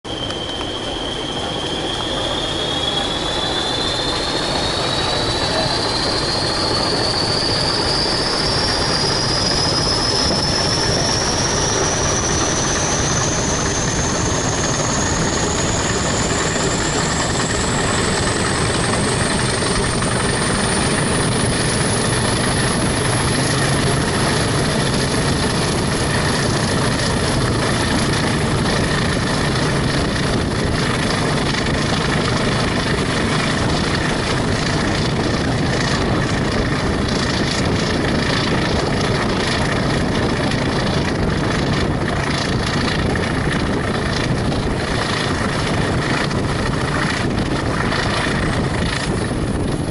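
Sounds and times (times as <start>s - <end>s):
diesel locomotives working hard: 0.0s - 49.9s
turbocharger whistle: 0.1s - 36.8s
train wheels on rails: 0.1s - 49.9s.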